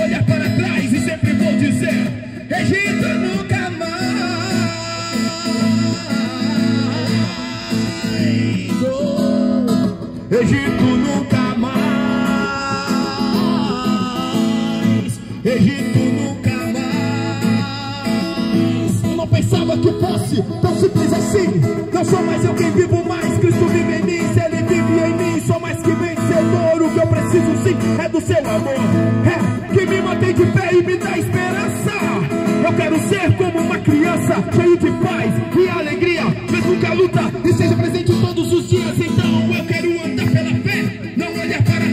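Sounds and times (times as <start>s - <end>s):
acoustic guitar chords: 0.0s - 41.9s
man singing into microphone: 0.0s - 41.9s
person singing: 2.6s - 19.1s.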